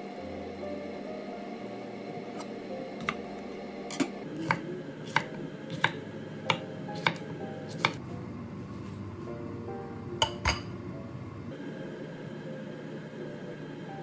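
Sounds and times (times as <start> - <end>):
kitchenware tapping on hard surface: 10.2 - 10.7.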